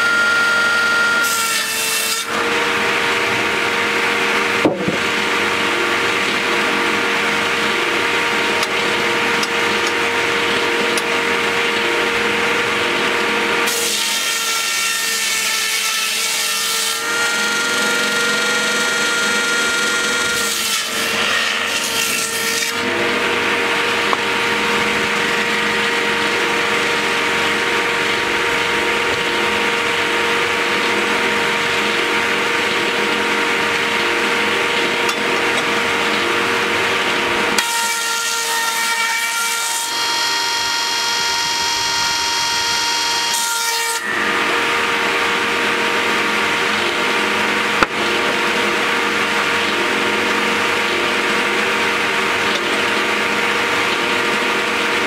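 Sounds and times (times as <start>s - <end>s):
electric motor hum: 2.2s - 13.9s
circular saw ripping boards: 13.2s - 24.5s.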